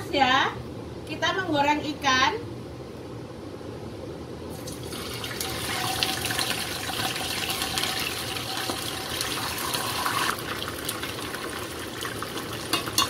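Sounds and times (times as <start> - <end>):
fish sizzling in hot oil: 4.6 - 13.0.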